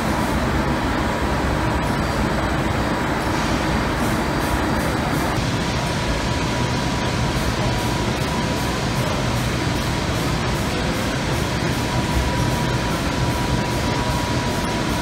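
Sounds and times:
machine humming and rumbling: 0.0 - 15.0.

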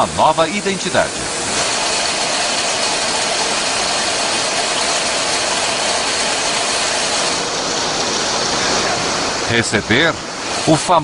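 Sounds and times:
can production line machinery: 0.0 - 11.0.

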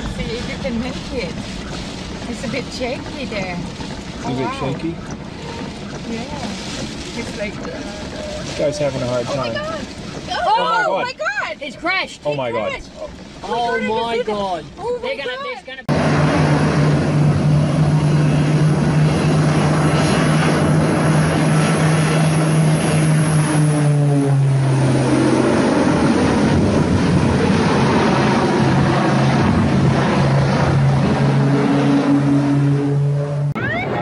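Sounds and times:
propeller airplane flying low: 0.0 - 34.0.

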